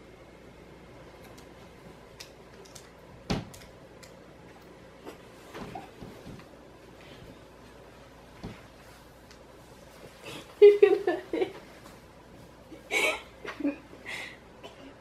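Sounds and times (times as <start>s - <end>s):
bedding rustling: 5.1s - 13.7s.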